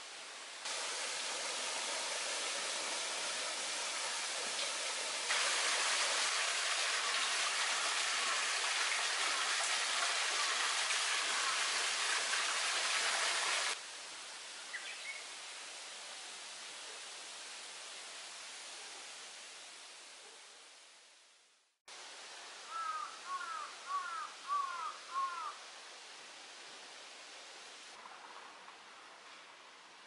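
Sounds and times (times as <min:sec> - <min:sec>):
water rushing: 0:00.6 - 0:13.8.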